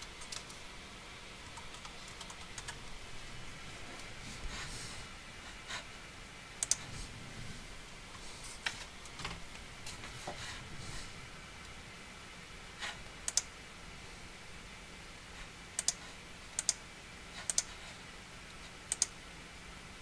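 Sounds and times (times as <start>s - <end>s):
computer keyboard keystrokes: 0.0s - 0.6s, 1.4s - 2.8s, 6.6s - 6.8s, 13.2s - 13.5s, 15.8s - 16.0s, 16.6s - 16.8s, 17.4s - 17.7s, 18.9s - 19.1s.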